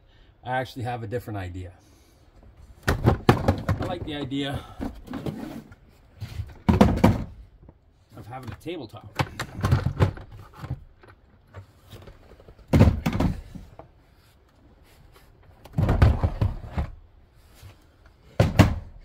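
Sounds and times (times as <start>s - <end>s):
hard plastic knocking and scraping: 2.8s - 7.8s, 8.4s - 13.9s.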